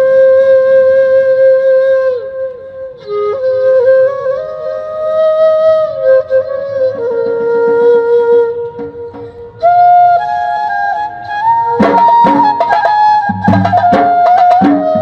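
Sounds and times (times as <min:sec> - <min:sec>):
flute-like slow melody: 0:00.0 - 0:15.0.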